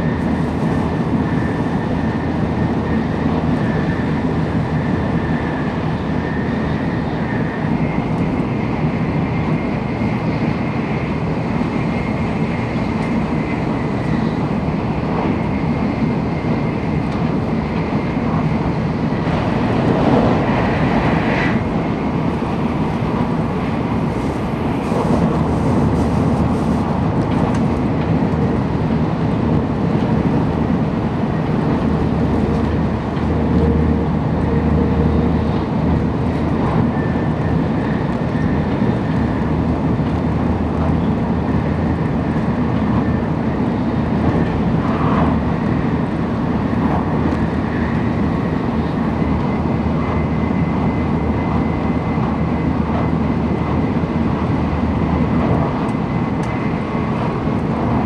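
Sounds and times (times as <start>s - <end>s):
train wheels rumbling: 0.0s - 58.0s
rushing air: 16.8s - 28.0s.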